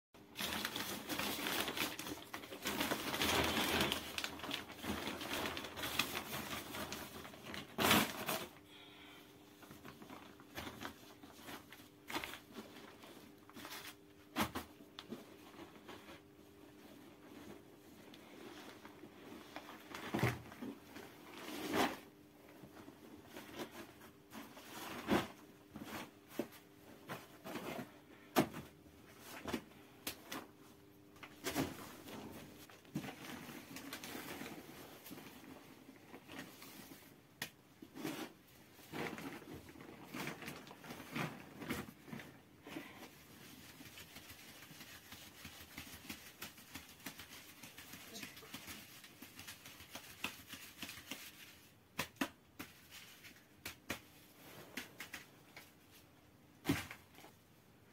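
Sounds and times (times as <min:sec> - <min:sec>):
cloth and plastic sheet rustling: 0:00.2 - 0:08.5, 0:31.3 - 0:52.0
flour sieve shaken and knocked: 0:43.3 - 0:55.3.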